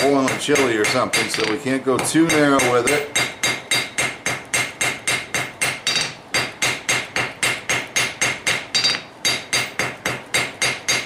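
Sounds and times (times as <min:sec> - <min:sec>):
forging hammer ringing on anvil: 0:02.2 - 0:11.0.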